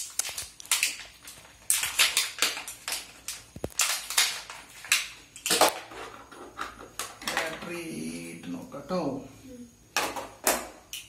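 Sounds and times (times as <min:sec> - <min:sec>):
packet crinkling and tearing: 0:00.0 - 0:05.7.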